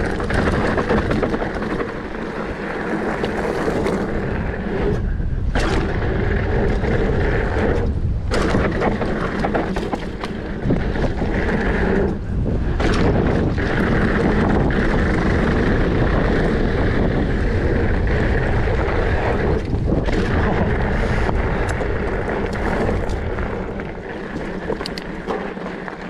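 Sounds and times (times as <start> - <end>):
bike rattles and clicks: 0.0 - 26.0
wind buffeting microphone: 0.0 - 26.0
tyre rumble on gravel: 5.6 - 26.0.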